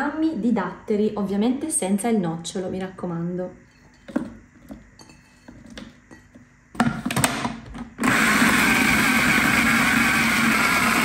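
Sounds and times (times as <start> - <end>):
food processor chopping: 6.8 - 11.0.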